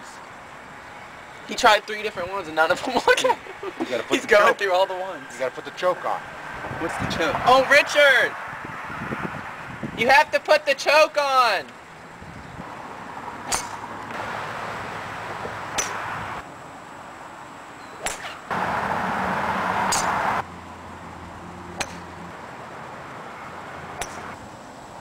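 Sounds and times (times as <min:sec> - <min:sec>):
outdoor background noise: 0:00.0 - 0:25.0
golf driver striking ball: 0:13.5 - 0:13.8.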